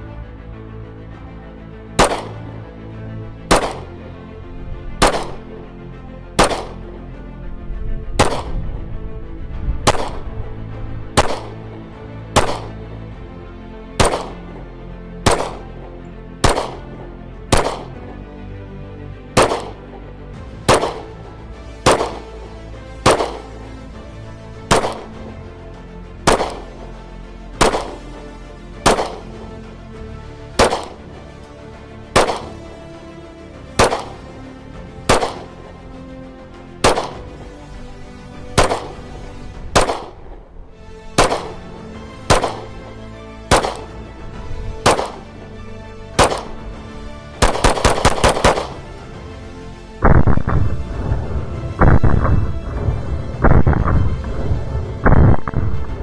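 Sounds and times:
background music: 0.0 - 56.0
gunshots: 2.0 - 2.5, 3.5 - 4.0, 5.0 - 5.5, 6.4 - 6.9, 8.2 - 8.6, 9.9 - 10.2, 11.2 - 11.7, 12.3 - 12.8, 14.0 - 14.5, 15.2 - 15.8, 16.4 - 16.9, 17.5 - 18.0, 19.4 - 19.9, 20.7 - 21.2, 21.8 - 22.4, 23.0 - 23.6, 24.7 - 25.2, 26.3 - 26.7, 27.6 - 28.0, 28.8 - 29.4, 30.6 - 31.1, 32.2 - 32.7, 33.8 - 34.3, 35.1 - 35.6, 36.8 - 37.3, 38.6 - 39.1, 39.7 - 40.3, 41.2 - 42.8, 43.5 - 44.0, 44.8 - 45.2, 46.2 - 46.6, 47.4 - 48.8, 55.0 - 55.6.

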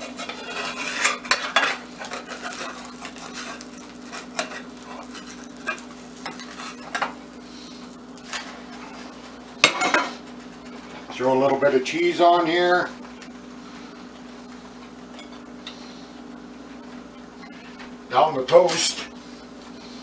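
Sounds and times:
spatula scraping a cast iron pan: 0.0 - 8.5
low sizzle of butter: 0.0 - 11.7.

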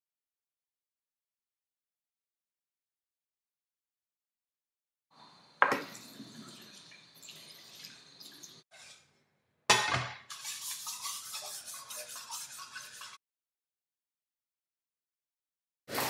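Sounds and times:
tap water running into sink: 5.6 - 8.6
scratchy rubbing: 10.3 - 13.2.

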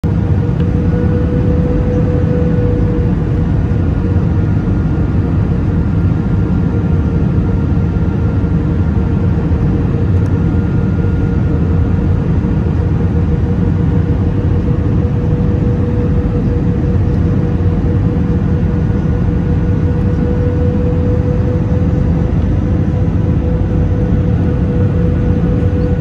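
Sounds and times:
engine and airflow rush: 0.0 - 26.0
faint steady whine: 0.1 - 26.0.

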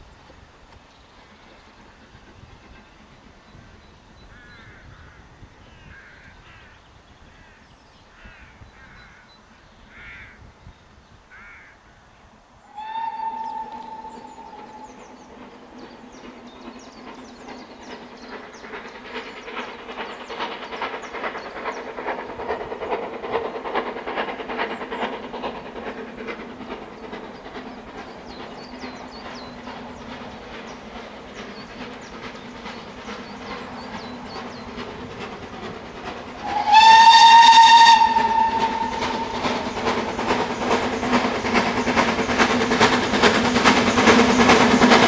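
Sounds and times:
steam locomotive exhaust beats: 0.0 - 6.6, 12.6 - 45.0
train running noise: 0.0 - 45.0
bird calling: 12.6 - 17.1, 36.4 - 41.6
steam locomotive whistle: 12.7 - 15.1, 36.4 - 39.8.

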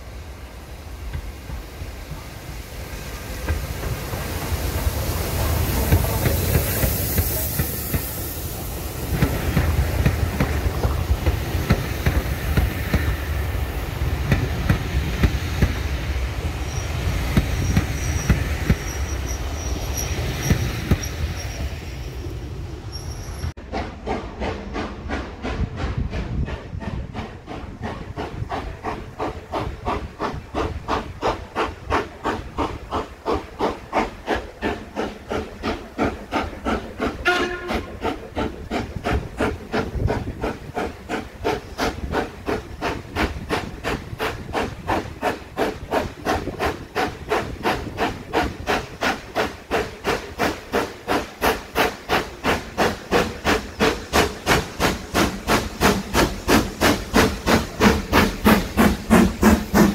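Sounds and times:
steam locomotive exhaust beats: 0.0 - 59.9
steam locomotive whistle: 37.2 - 38.0.

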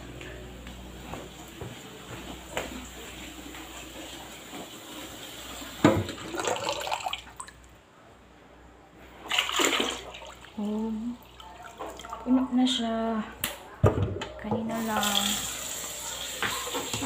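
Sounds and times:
water splashing in pitcher: 5.8 - 7.6, 9.2 - 10.7.

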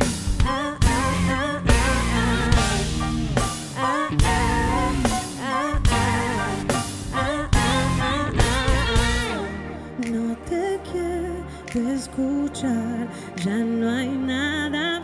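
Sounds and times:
live band playing: 0.0 - 10.2
woman singing: 0.3 - 3.0, 3.7 - 15.0.

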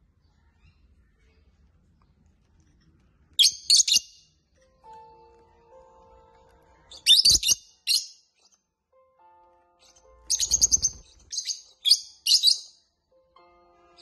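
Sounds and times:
lovebirds chirping: 3.4 - 8.6, 9.8 - 12.9.

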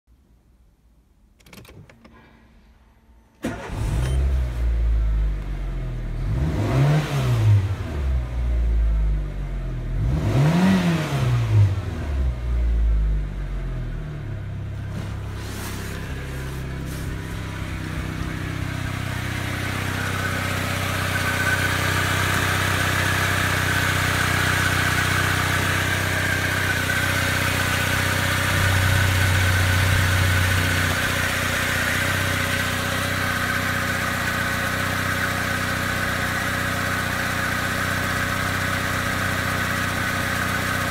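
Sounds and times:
car engine starting: 1.4 - 40.9
engine revving: 3.4 - 40.9
engine idling: 14.6 - 40.9.

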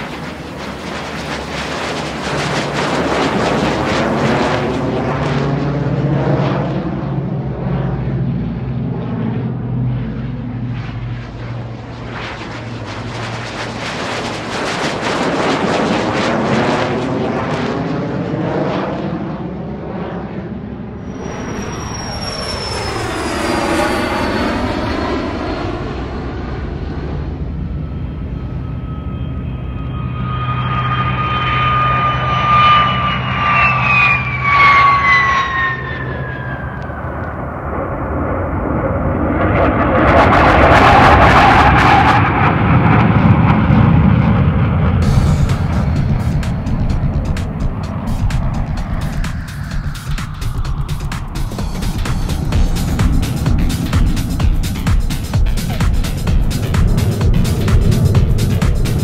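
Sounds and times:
high turbine whine falling in pitch: 0.0 - 5.9, 20.8 - 59.0
jet engines passing by: 0.0 - 59.0
jet engines whining at low power: 0.0 - 59.0.

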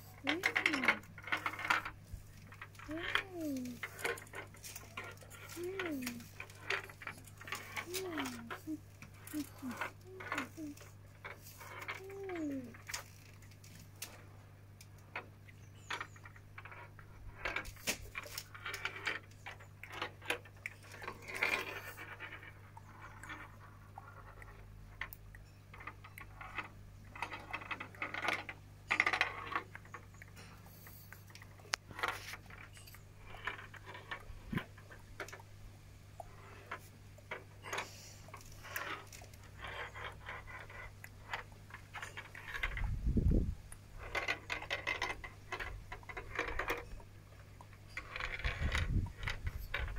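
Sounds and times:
plastic handling noise: 0.0 - 22.5
steel ball rattling on plastic tracks: 0.0 - 35.4, 36.3 - 49.9.

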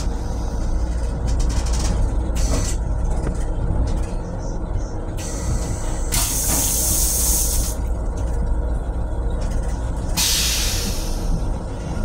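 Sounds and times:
low rumble of moving railcar: 0.0 - 12.0.

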